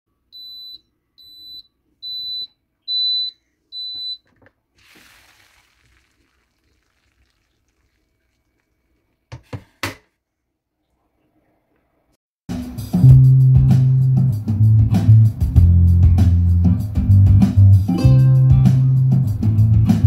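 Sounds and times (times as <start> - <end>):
rice cooker beeping: 0.3 - 4.3.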